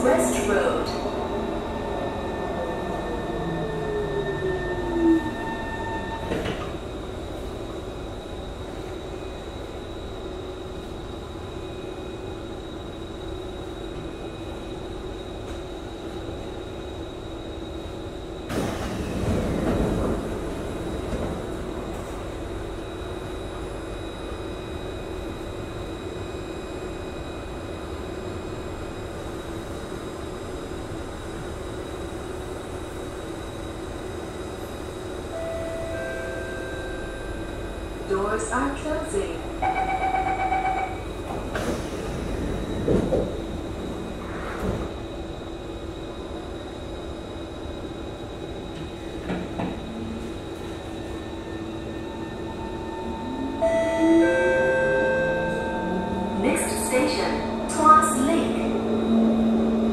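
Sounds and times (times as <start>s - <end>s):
train steady hum: 0.0s - 59.9s
train whine falling in pitch: 49.3s - 59.9s.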